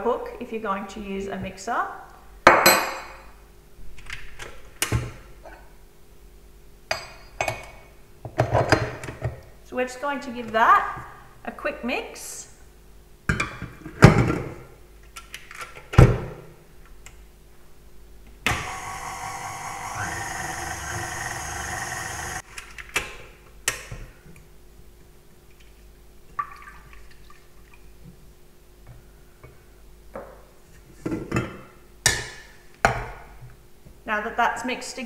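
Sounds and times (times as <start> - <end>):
stand mixer running: 18.5 - 22.4.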